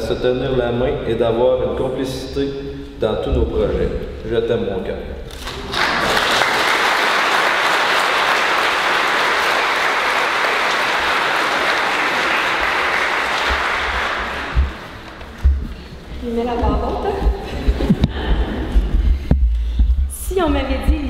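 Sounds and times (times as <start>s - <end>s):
audience applauding: 5.3s - 15.8s.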